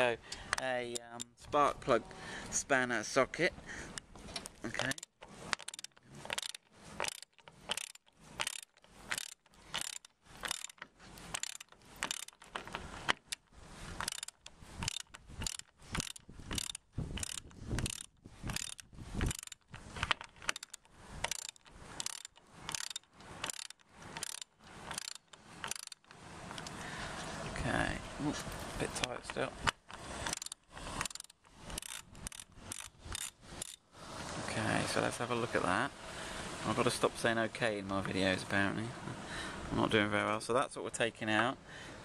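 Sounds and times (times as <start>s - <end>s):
hand ratchet clicking: 4.3s - 13.4s, 14.0s - 26.8s, 29.0s - 33.8s.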